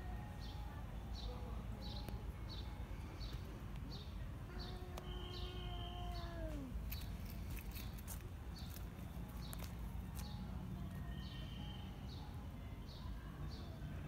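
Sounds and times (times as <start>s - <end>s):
cat meowing: 4.6s - 6.8s.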